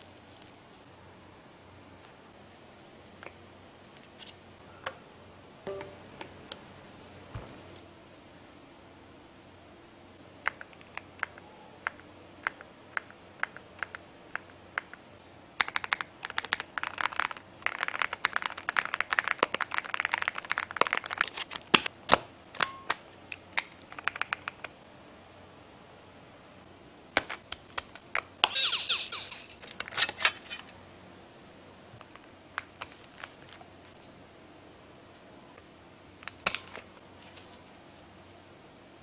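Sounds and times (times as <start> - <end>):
mechanical keyboard typing: 15.6 - 21.5.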